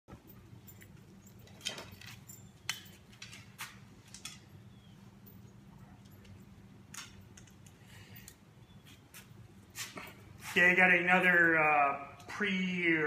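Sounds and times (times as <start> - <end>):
steady low hum: 0.1 - 12.9
dog claws clicking on concrete: 0.8 - 4.5.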